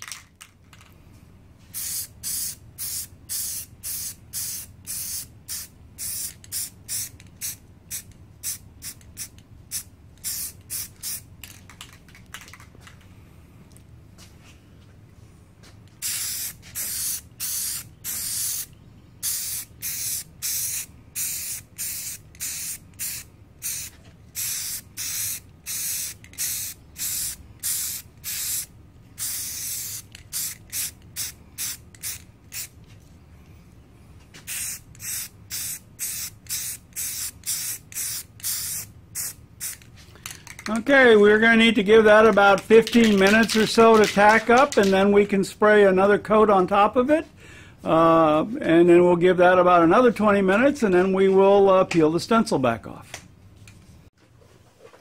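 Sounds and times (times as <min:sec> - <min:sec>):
spray-paint can spraying: 0:01.7 - 0:12.7, 0:16.0 - 0:32.8, 0:34.4 - 0:40.7, 0:42.5 - 0:44.9.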